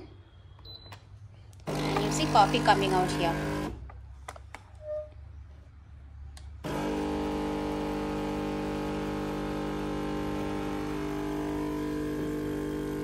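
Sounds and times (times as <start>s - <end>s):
espresso machine pump humming: 1.7s - 3.8s, 6.6s - 13.0s.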